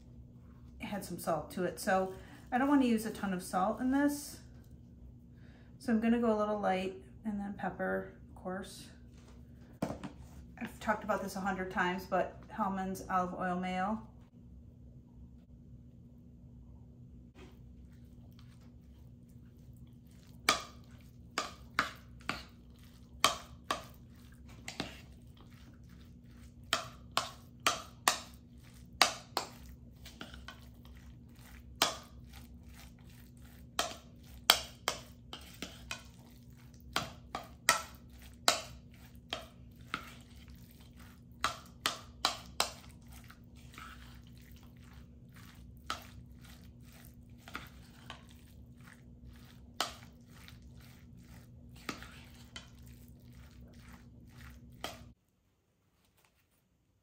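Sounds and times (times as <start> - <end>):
wet squishing of salad: 17.5 - 55.2.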